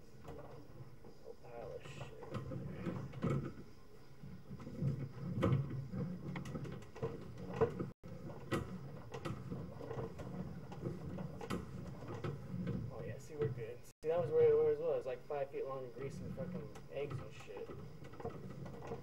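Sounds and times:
cable clicking and knocking: 1.9s - 13.7s, 16.1s - 19.0s.

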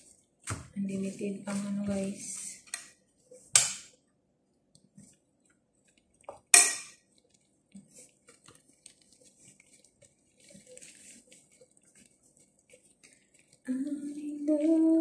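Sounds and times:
small clicks and rustles: 7.0s - 14.7s.

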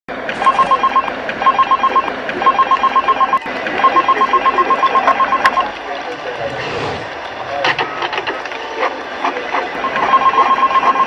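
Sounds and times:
rapid electronic beeping trill: 0.3s - 5.7s, 9.7s - 11.0s.

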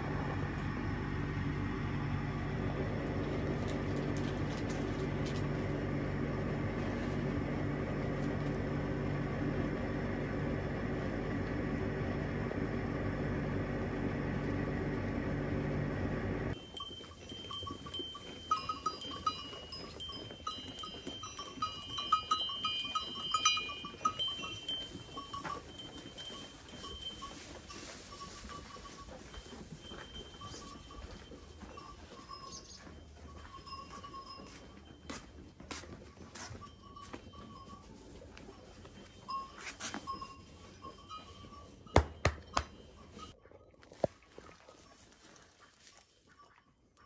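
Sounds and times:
low machine hum: 0.0s - 35.5s
goat bells clinking: 16.5s - 43.4s.

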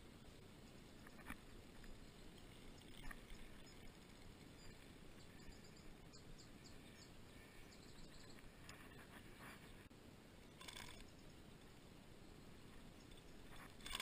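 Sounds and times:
faint high bird chirps: 1.9s - 9.0s.

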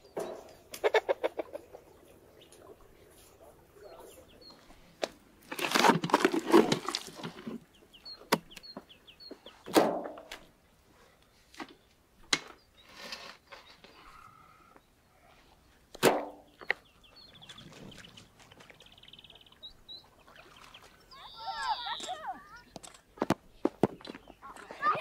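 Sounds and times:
shovel scraping wet clay: 5.4s - 7.6s
faint bird chirps: 12.6s - 15.8s, 16.5s - 22.8s
sharp knocks: 16.0s - 16.5s.

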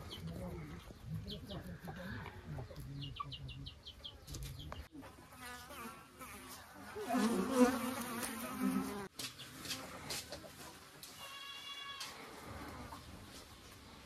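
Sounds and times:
flying insect buzzing: 5.3s - 10.0s.

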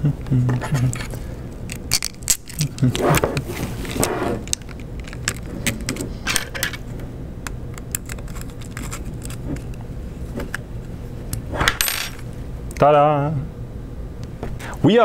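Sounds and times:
steady low hum: 0.0s - 15.0s
plastic parts clicking and rattling: 4.4s - 6.8s, 7.8s - 9.8s.

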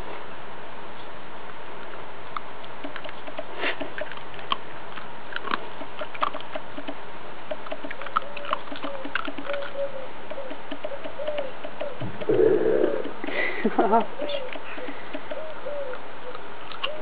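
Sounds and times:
puppy crunching bones: 2.3s - 12.4s, 13.0s - 17.0s
pigeon cooing: 7.5s - 17.0s.

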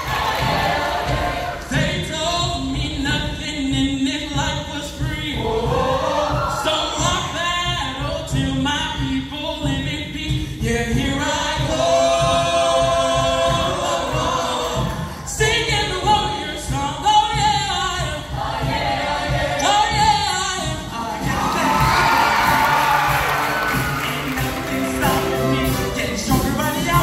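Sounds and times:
choir singing: 0.0s - 1.9s, 5.3s - 7.3s, 11.5s - 15.3s, 18.2s - 20.3s, 20.9s - 27.0s
live band playing: 14.8s - 27.0s.

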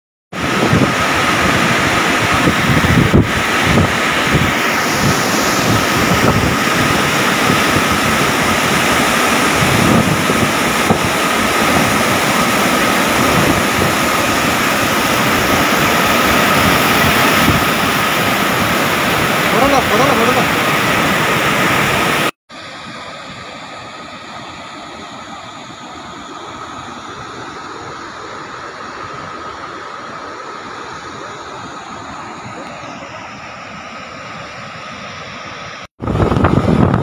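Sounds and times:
wind buffeting microphone: 0.4s - 19.6s, 36.0s - 37.0s
river rushing over rocks: 0.4s - 36.9s.

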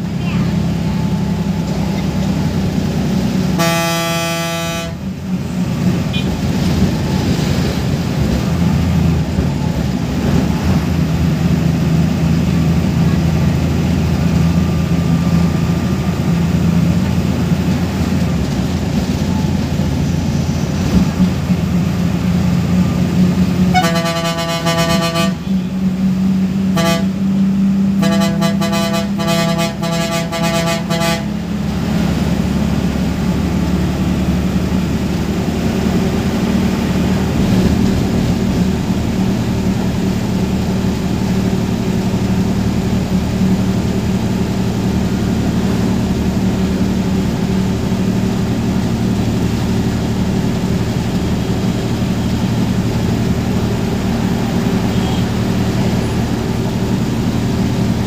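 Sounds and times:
diesel bus engine running: 0.0s - 58.0s
bus horn toots: 3.5s - 5.2s, 6.0s - 6.4s, 23.6s - 25.8s, 26.7s - 27.3s, 27.9s - 31.5s, 54.7s - 55.6s.

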